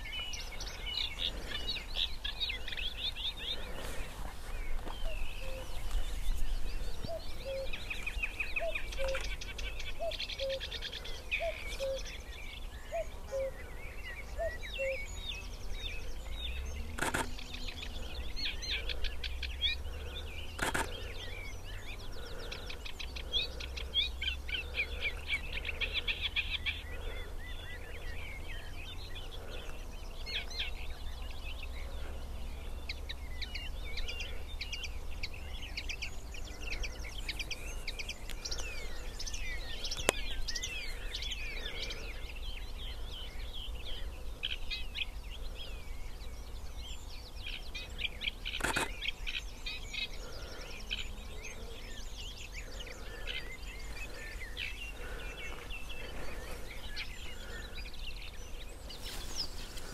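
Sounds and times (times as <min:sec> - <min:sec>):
warbler singing: 0:00.0 - 0:59.9
sharp clicks: 0:16.9 - 0:17.4, 0:20.6 - 0:21.0, 0:48.6 - 0:48.9.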